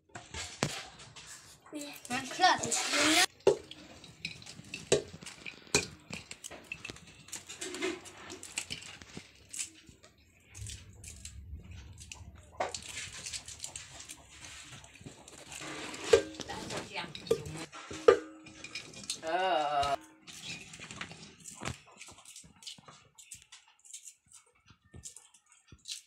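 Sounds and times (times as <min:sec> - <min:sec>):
hands peeling fruit: 0:01.8 - 0:17.7, 0:18.8 - 0:26.0
metal bowls clinking: 0:01.9 - 0:23.4.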